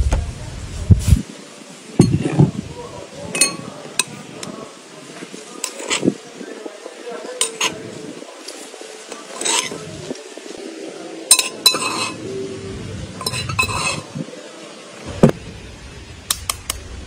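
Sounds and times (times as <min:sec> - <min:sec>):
spoon clinking brass bowl: 0:03.3 - 0:04.1, 0:07.4 - 0:07.8, 0:11.3 - 0:12.2, 0:13.2 - 0:14.2.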